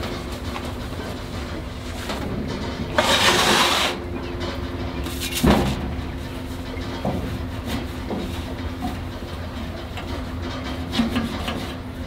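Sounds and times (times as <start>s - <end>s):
steady low hum: 0.0s - 12.0s
sponge scrubbing steel: 3.0s - 4.0s.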